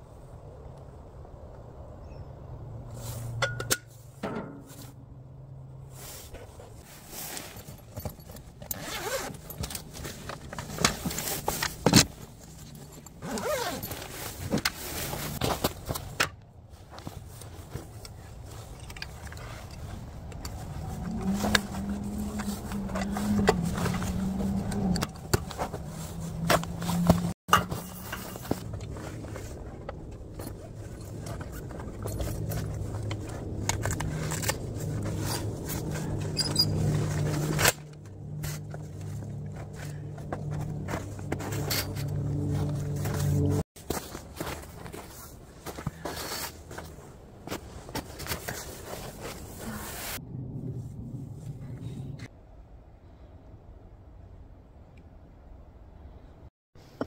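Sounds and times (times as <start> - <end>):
gear knocking and scraping: 6.0 - 50.0.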